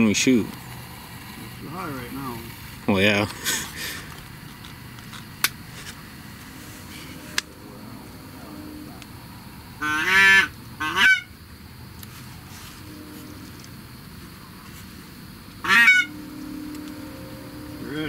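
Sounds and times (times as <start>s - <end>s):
geese honking: 6.0s - 11.3s, 12.4s - 14.8s, 15.4s - 18.0s.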